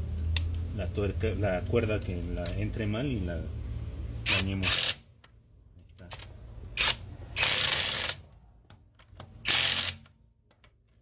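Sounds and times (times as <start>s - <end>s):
impact wrench bursts: 4.2s - 5.0s, 6.7s - 8.2s, 9.4s - 10.1s.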